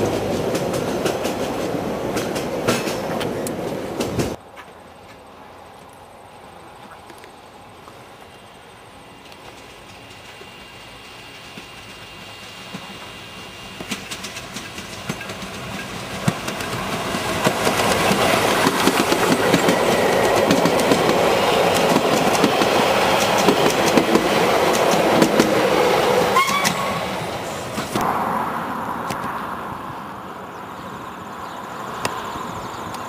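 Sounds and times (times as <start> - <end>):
wheels clicking over rail joints: 0.0 - 6.1, 13.8 - 26.9
steam locomotive passing: 0.0 - 6.8, 7.4 - 33.0
rising squeal: 25.6 - 32.8.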